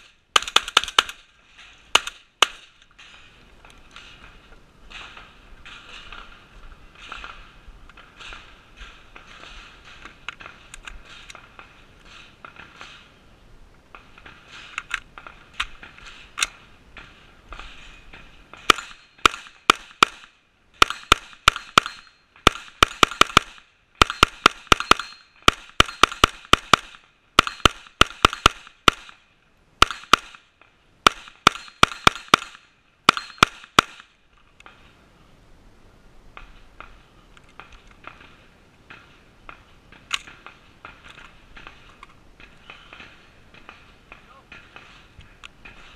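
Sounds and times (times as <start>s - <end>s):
rifle firing rapid shots: 0.0s - 1.3s, 18.6s - 29.2s, 29.8s - 30.4s, 31.0s - 34.1s.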